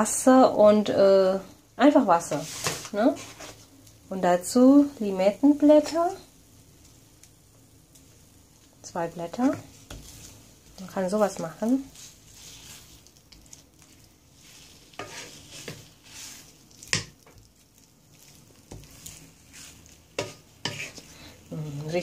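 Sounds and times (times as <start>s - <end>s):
chicken sizzling in a frying pan: 0.0s - 22.0s
spatula scraping and knocking pan: 2.2s - 3.6s, 9.3s - 17.5s, 18.1s - 21.2s.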